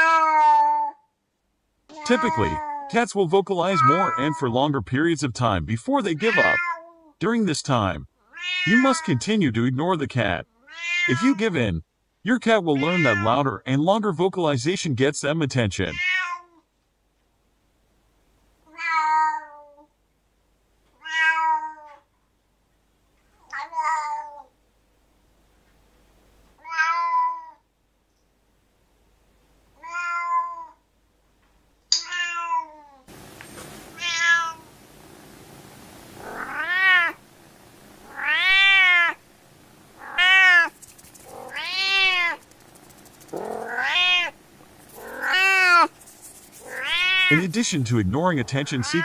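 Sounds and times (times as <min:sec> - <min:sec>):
cat meowing: 0:00.0 - 0:01.0, 0:01.9 - 0:02.9, 0:03.6 - 0:04.4, 0:06.2 - 0:07.1, 0:08.2 - 0:09.2, 0:10.5 - 0:11.4, 0:12.8 - 0:13.4, 0:15.9 - 0:16.6, 0:18.7 - 0:19.9, 0:21.0 - 0:22.1, 0:23.4 - 0:24.5, 0:26.6 - 0:27.6, 0:29.8 - 0:30.8, 0:32.0 - 0:33.0, 0:33.9 - 0:34.7, 0:36.2 - 0:37.2, 0:38.0 - 0:39.2, 0:40.0 - 0:42.4, 0:43.3 - 0:44.4, 0:45.0 - 0:46.0, 0:46.6 - 0:47.5, 0:48.4 - 0:49.0
faint background hiss: 0:00.0 - 0:49.0.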